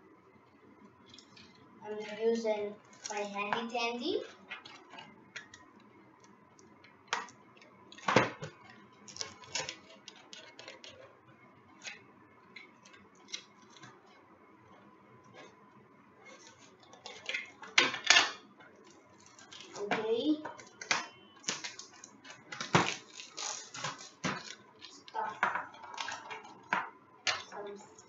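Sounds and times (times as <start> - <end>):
shrink-wrap crinkling: 20.6 - 26.7.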